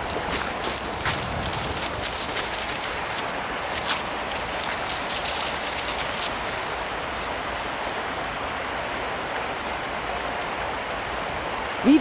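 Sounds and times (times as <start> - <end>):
footsteps crunching frosty grass: 0.0 - 7.5.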